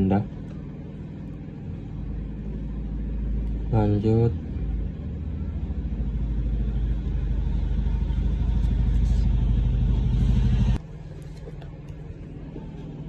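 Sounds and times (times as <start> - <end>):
loud pulsing low rumble: 1.7 - 10.8.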